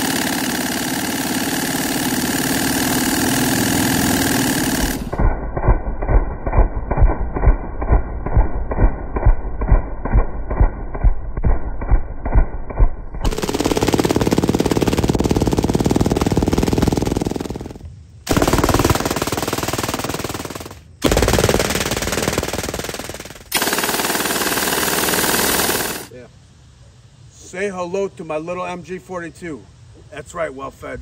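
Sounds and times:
machine gun firing bursts: 0.0 - 8.4, 13.2 - 26.1.

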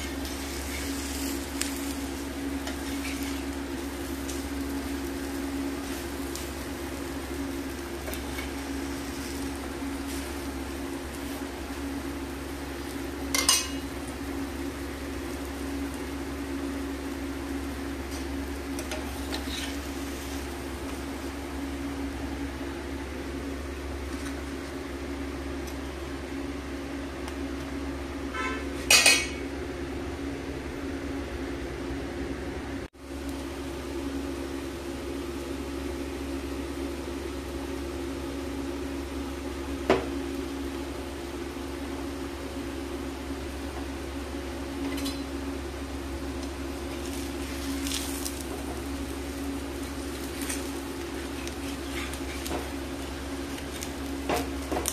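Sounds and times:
machine hum: 0.0 - 54.9
spatula scraping: 18.1 - 20.5, 50.4 - 52.7.

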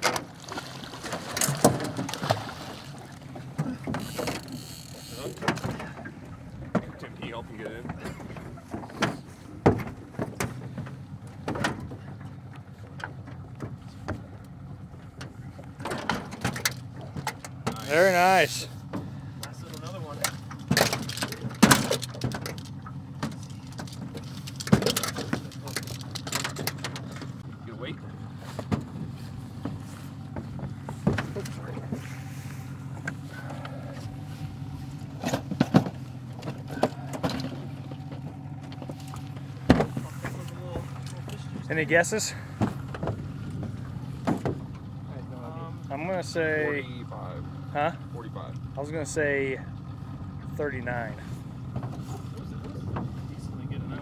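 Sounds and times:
boat motor humming: 0.0 - 54.0
knocks against boat: 1.0 - 2.4, 5.2 - 12.4, 20.2 - 27.4, 28.5 - 32.1, 35.0 - 41.7, 42.4 - 44.8, 51.7 - 53.2.

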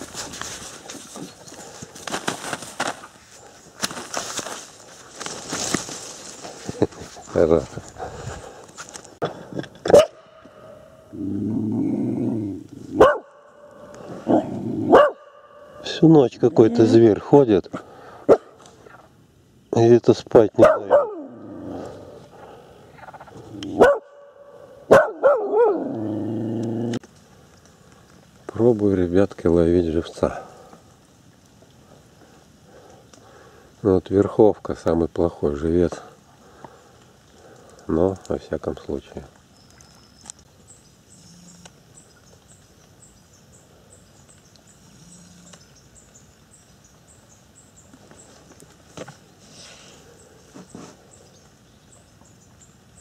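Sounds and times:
dog barking: 9.9 - 10.9, 13.0 - 15.8, 18.3 - 18.6, 20.6 - 21.3, 23.7 - 25.9
dog growling: 11.1 - 13.0, 14.0 - 15.0, 21.0 - 22.3, 25.5 - 27.0.

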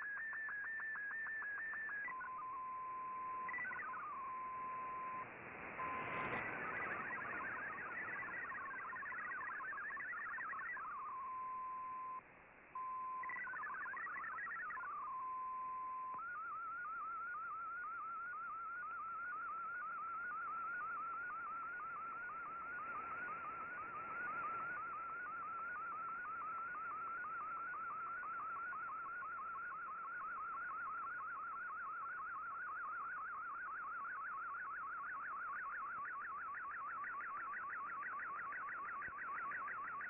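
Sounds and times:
hopping data tones: 1.0 - 12.1
radio hiss: 3.4 - 11.3
fast repeating digital warble: 5.8 - 10.8.

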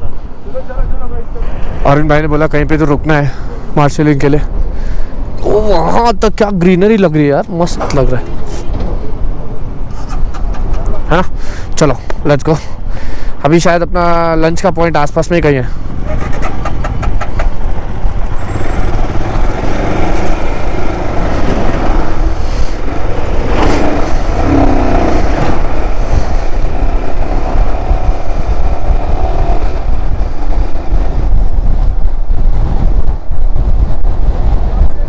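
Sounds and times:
wind and road rush: 0.0 - 35.0.

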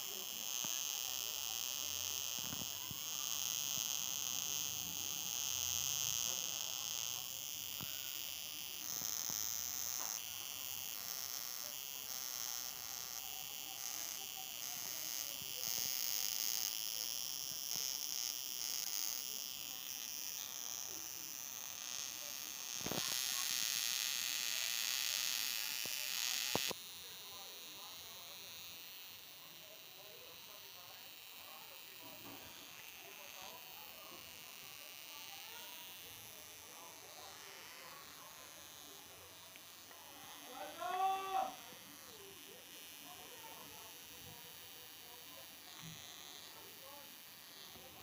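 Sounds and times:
tesla coil buzzing hiss: 0.0 - 48.0.

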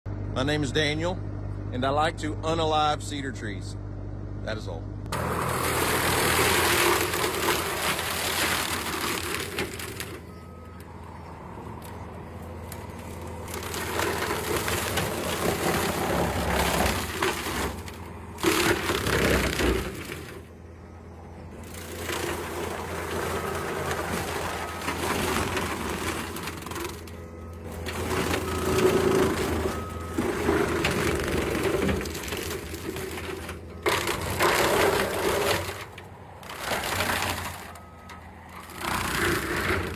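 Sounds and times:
loader engine running under load: 0.1 - 39.9
tree saw cutting trunks: 5.1 - 10.4, 12.7 - 20.5, 21.5 - 39.9.

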